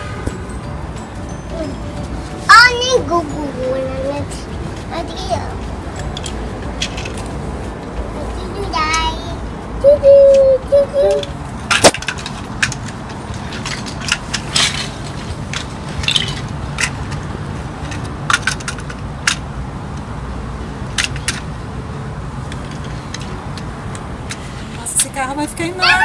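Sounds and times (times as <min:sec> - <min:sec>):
plastic bricks clicking: 0:11.2 - 0:17.3.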